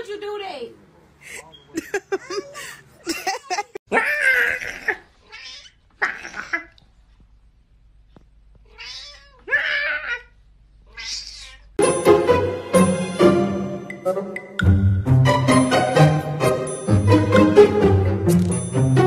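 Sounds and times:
cat meowing: 4.0 - 6.7, 8.6 - 11.8.

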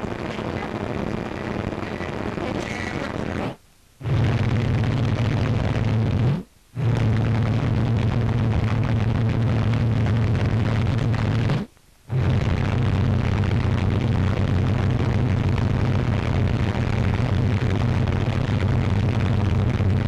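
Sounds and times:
low engine drone: 4.0 - 20.0.

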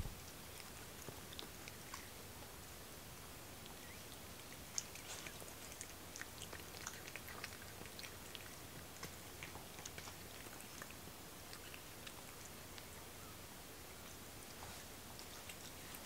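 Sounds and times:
cat chewing: 0.1 - 16.0.

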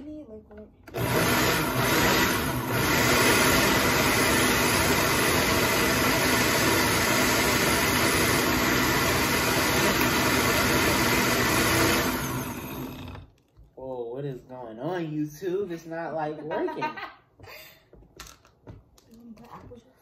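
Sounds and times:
blender motor running: 0.9 - 13.4.

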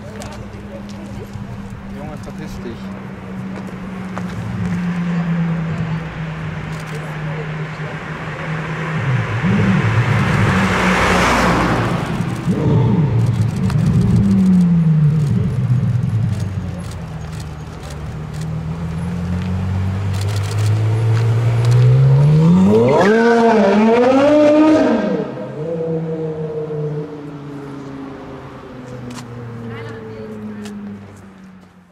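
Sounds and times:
sports car engine driving past: 0.1 - 31.7
engine revving under acceleration: 2.3 - 27.4.

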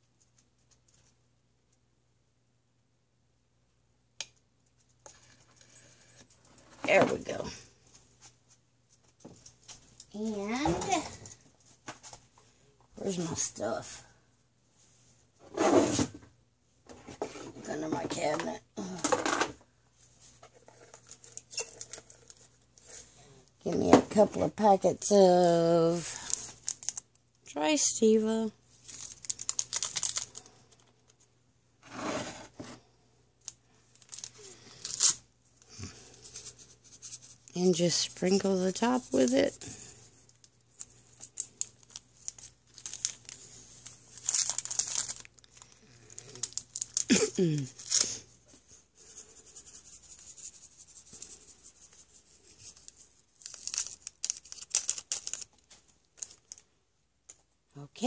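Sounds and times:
paper packets tearing open: 26.3 - 27.0, 28.8 - 30.9, 33.9 - 35.2, 40.8 - 48.2, 52.8 - 56.6.

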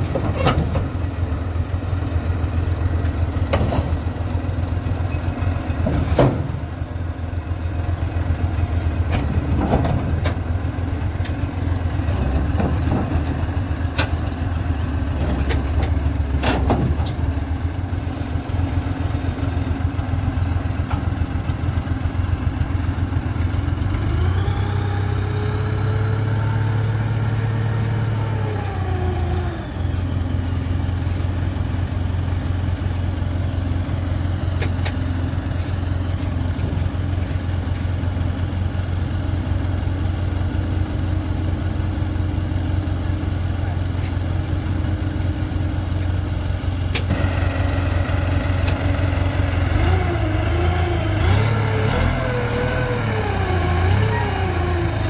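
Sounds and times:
diesel engines running: 0.0 - 55.0
engine revving: 48.7 - 55.0.

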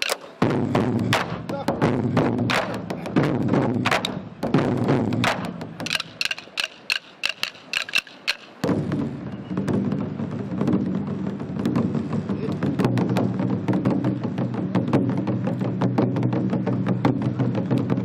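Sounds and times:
drumsticks clicking together: 0.0 - 0.3, 5.8 - 8.6
large barrel drums: 0.0 - 18.0.

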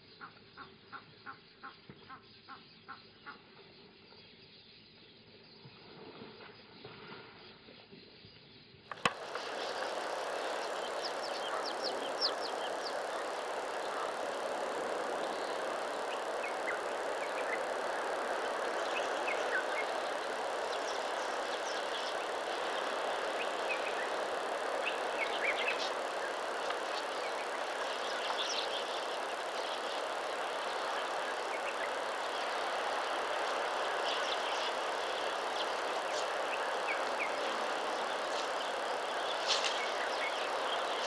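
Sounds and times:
sharp click: 8.9 - 9.5
steady hiss: 8.9 - 41.0
bird chirps and calls: 9.2 - 37.4.

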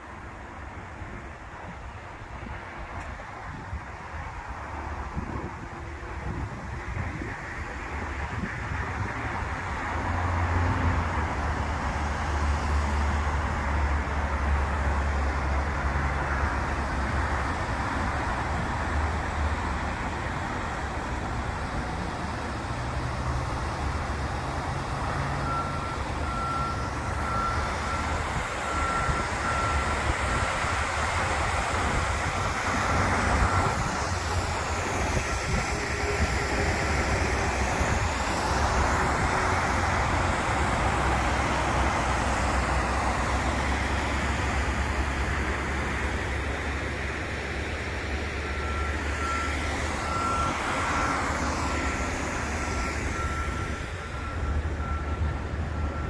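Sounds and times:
heavy vehicle engine rumble: 0.0 - 56.0
road traffic noise: 0.0 - 56.0
reversing beeper: 24.7 - 45.9, 47.5 - 56.0.

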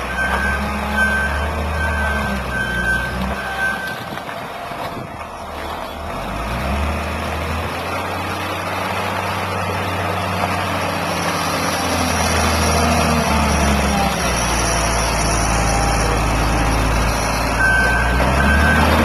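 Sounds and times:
diesel engine running: 0.0 - 19.0
reversing beeper: 0.1 - 4.0, 13.5 - 19.0.

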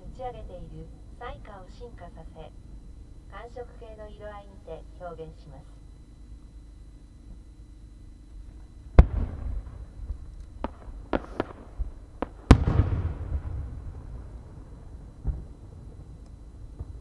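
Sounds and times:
firework booms: 8.9 - 17.0
small firework cracks: 9.0 - 14.6.

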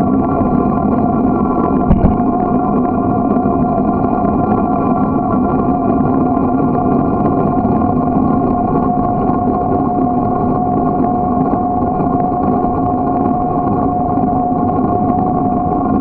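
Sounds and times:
steady whine: 1.9 - 3.0.

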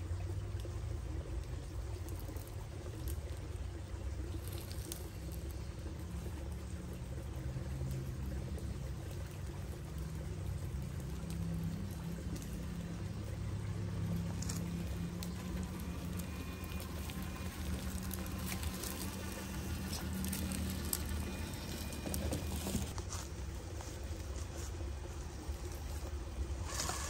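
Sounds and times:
motor and gear hum: 0.0 - 27.0
tyres crunching dry leaves: 10.4 - 27.0.

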